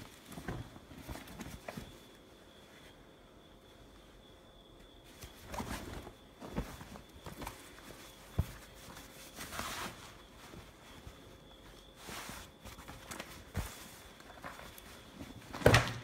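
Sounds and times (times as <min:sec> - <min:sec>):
fabric rustling: 0:05.0 - 0:15.8.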